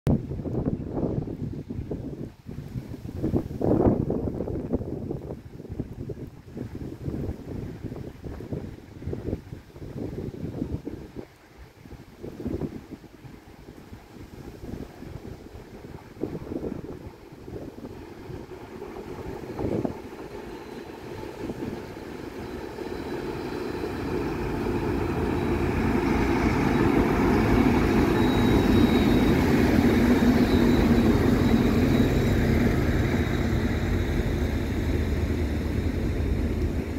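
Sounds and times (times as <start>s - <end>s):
diesel locomotive engines passing: 10.8s - 36.9s
faint high squeal: 19.3s - 35.9s.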